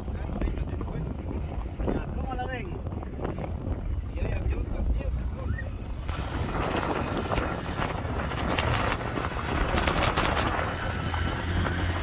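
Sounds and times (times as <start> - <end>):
wind buffeting microphone: 0.0 - 12.0
small motorcycle running: 6.1 - 12.0.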